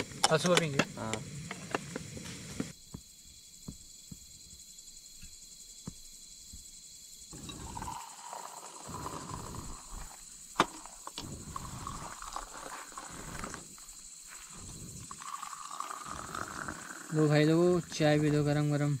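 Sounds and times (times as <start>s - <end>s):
tea pouring into steel cups: 7.3s - 18.6s.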